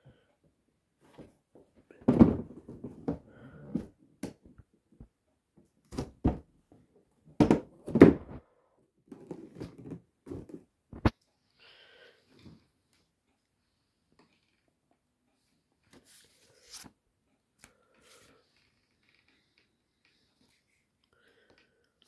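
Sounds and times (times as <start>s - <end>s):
cardboard box thumping and scraping: 2.1s - 3.2s.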